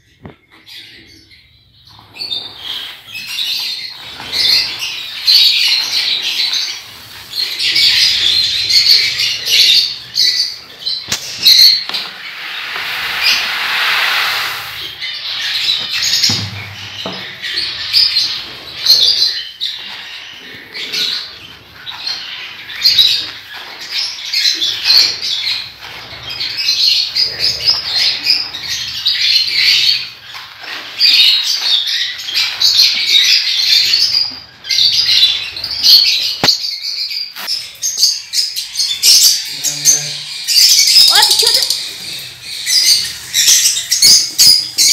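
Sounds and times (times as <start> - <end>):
birds chattering and chirping: 0.0 - 44.9
seed rustling in plastic tub: 11.1 - 16.1.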